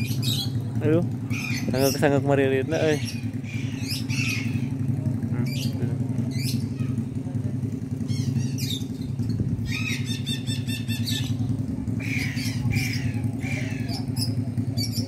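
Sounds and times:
low mechanical hum: 0.0s - 15.0s
parakeet squawking: 1.3s - 2.1s, 2.7s - 4.7s, 8.1s - 8.9s, 9.6s - 11.4s, 12.0s - 15.0s.

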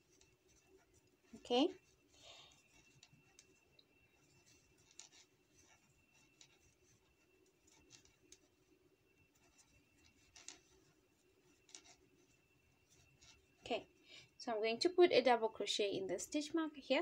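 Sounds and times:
crochet hook scraping cord: 0.0s - 3.6s, 4.2s - 8.5s, 9.3s - 13.9s
faint steady hum: 0.0s - 17.0s.

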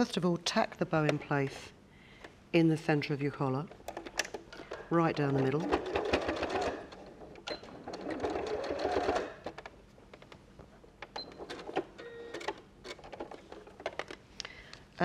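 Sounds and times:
sewing machine stitching: 4.7s - 9.5s.

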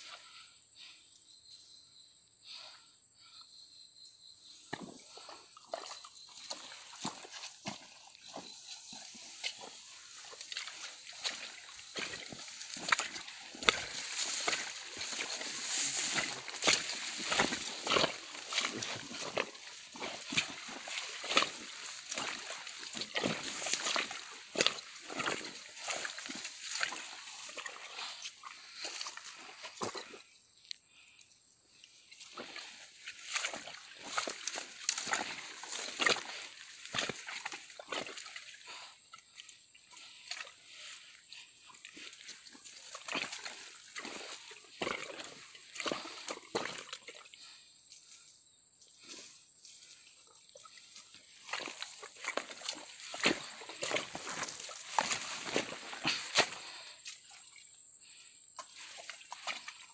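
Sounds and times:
water splashing in ditch: 4.7s - 30.2s, 32.2s - 47.6s, 50.5s - 57.4s, 58.6s - 59.9s
footsteps crunching on dry leaves: 6.6s - 29.3s, 32.4s - 38.2s, 51.3s - 56.9s
brushing through tall grass: 7.5s - 24.6s.

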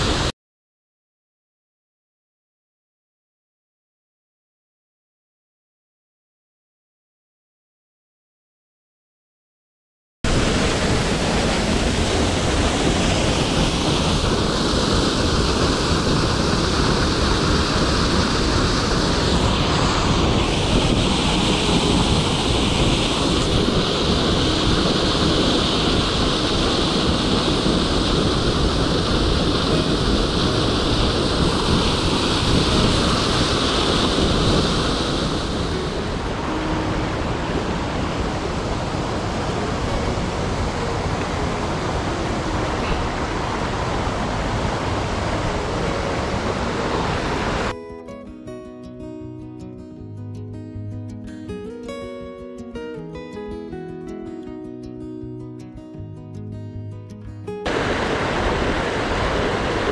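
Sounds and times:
waterfall rushing: 0.0s - 0.3s, 10.3s - 47.7s, 57.7s - 59.9s.

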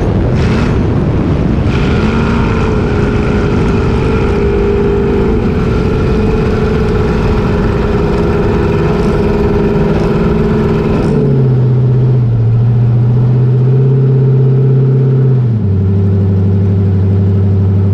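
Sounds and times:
boat engine running hard: 0.0s - 13.1s
wind noise: 0.0s - 14.2s.

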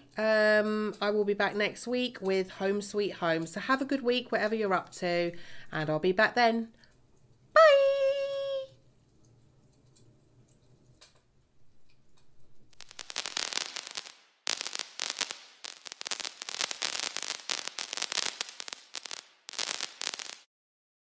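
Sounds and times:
wood fire crackling: 9.0s - 20.5s.

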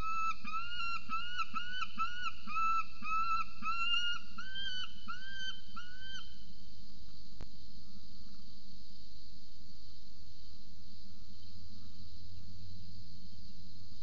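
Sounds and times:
falcon calling: 0.0s - 6.4s.

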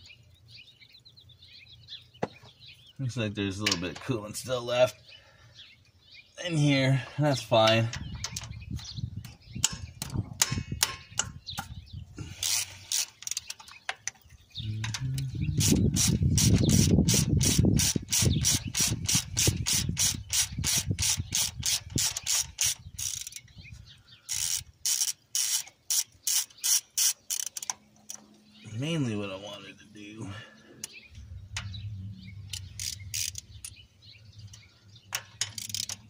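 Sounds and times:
socket ratchet clicking: 14.9s - 23.5s, 24.3s - 28.2s, 32.5s - 33.8s, 35.2s - 36.0s
low rumble: 31.1s - 35.0s.

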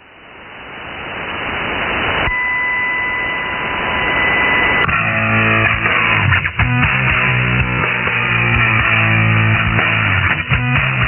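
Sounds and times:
shortwave radio static: 0.0s - 8.8s
guitar rock music on radio: 2.2s - 11.0s
steady whistle tone: 2.3s - 4.9s.

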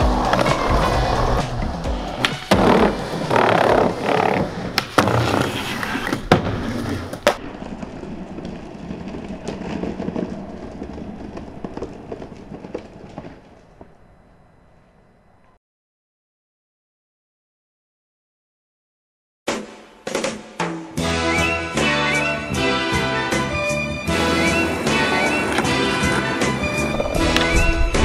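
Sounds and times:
skateboard wheels rolling on pavement: 0.0s - 15.6s, 22.9s - 28.0s
skateboard clacks and landings: 0.1s - 14.0s, 24.1s - 27.8s.

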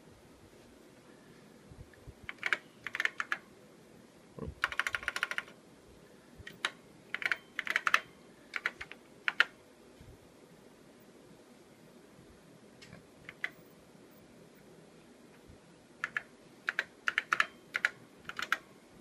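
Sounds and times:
computer keyboard typing: 2.3s - 3.4s, 4.6s - 5.6s, 6.5s - 9.6s, 13.3s - 13.6s, 16.0s - 18.6s.

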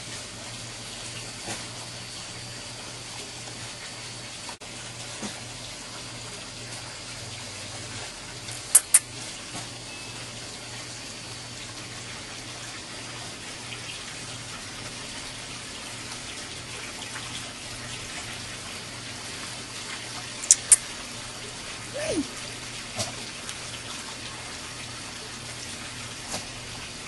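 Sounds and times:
sharp high clicks: 8.7s - 9.1s, 20.4s - 20.9s.

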